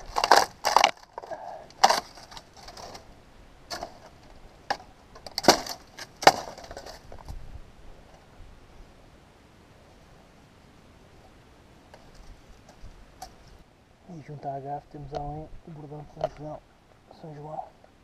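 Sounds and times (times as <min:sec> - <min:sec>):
dry plant stalks snapping: 0:00.0 - 0:03.1, 0:03.7 - 0:07.4.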